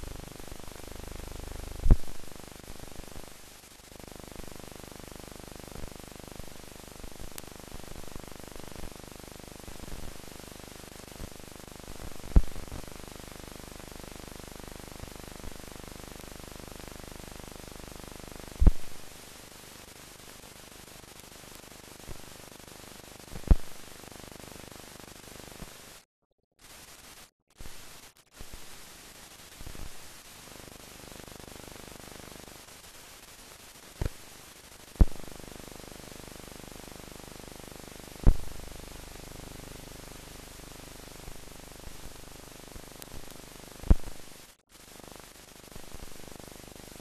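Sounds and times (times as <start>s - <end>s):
film hiss: 0.0s - 26.0s, 26.6s - 47.0s
clicks and pops: 18.6s - 18.9s.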